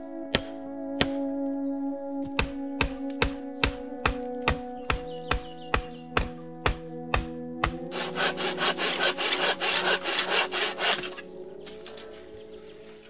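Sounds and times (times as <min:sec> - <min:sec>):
soft background music: 0:00.0 - 0:13.0
hammer blows on wood: 0:00.3 - 0:01.3, 0:02.2 - 0:11.2
hand saw cutting wood: 0:07.9 - 0:12.1.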